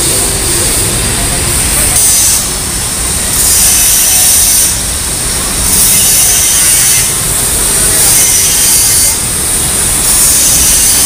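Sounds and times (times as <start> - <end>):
steady low rumble: 0.0 - 3.4
loud surging machine hiss: 0.0 - 11.0.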